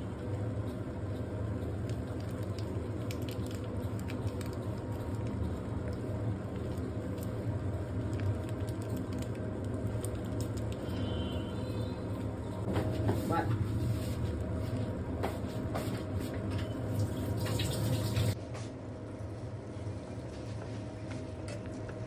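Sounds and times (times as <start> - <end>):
steady low hum: 0.0 - 22.0
noodles crackling in a pan: 1.6 - 12.0.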